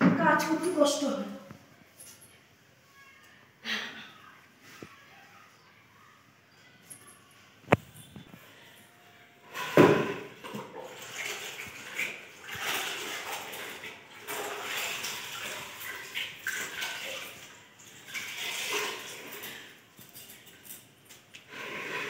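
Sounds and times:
mop sloshing in bucket of water: 9.6s - 19.7s.

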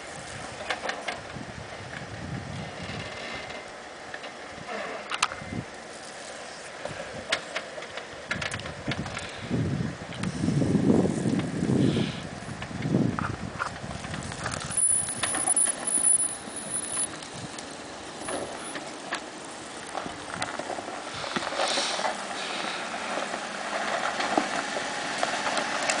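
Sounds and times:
low engine rumble: 0.0s - 26.0s
tyres crunching over rock and gravel: 12.6s - 26.0s.

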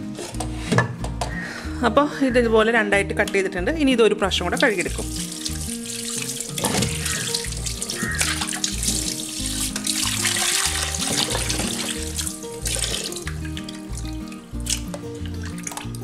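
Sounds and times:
background music with beat: 0.0s - 2.6s, 5.0s - 16.0s
hands splashing in water: 4.5s - 16.0s
tap water running into pot: 4.5s - 16.0s.

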